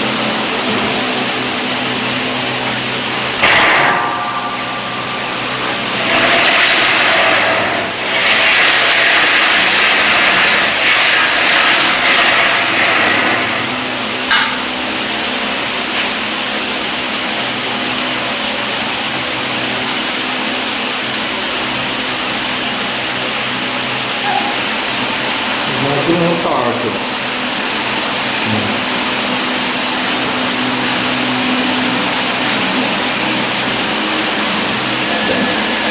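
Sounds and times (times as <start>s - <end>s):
mechanical workshop noise: 0.0s - 35.9s
low hum: 2.4s - 8.2s.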